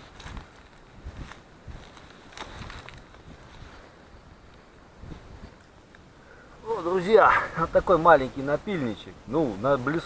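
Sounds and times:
wind buffeting microphone: 0.0s - 6.2s.

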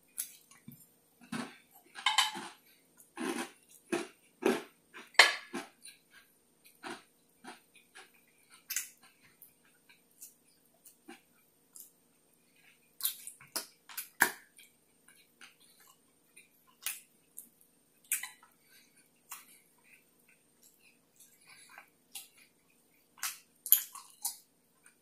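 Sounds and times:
chewing and lip smacking: 12.6s - 25.0s.

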